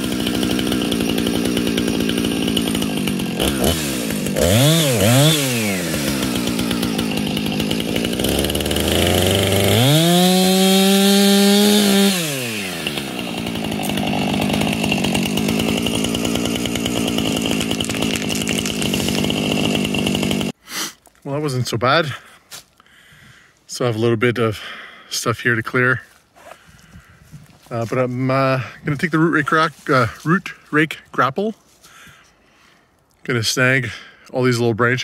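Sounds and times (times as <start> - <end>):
chainsaw cutting brush: 0.0 - 20.6
chainsaw idling and revving: 0.0 - 20.6, 27.5 - 31.2.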